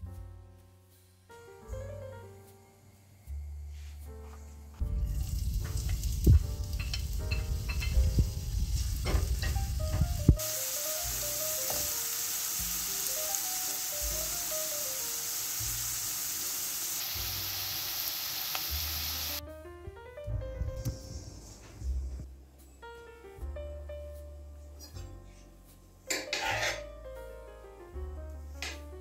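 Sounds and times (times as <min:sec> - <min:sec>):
onion sizzling in oil: 0:04.8 - 0:19.4
wooden spoon scraping plate: 0:26.1 - 0:26.8.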